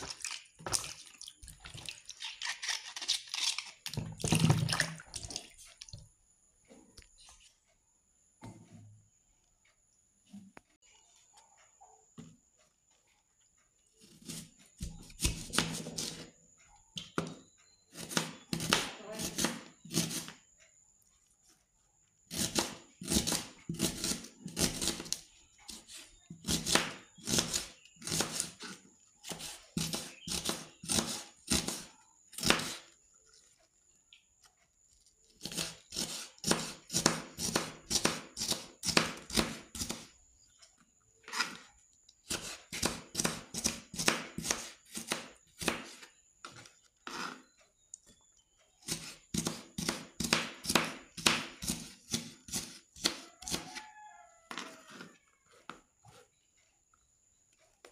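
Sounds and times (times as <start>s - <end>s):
knife chopping on cutting board: 14.2s - 16.2s, 17.1s - 20.4s, 22.3s - 32.8s, 35.4s - 40.1s, 42.3s - 47.4s, 48.9s - 53.8s.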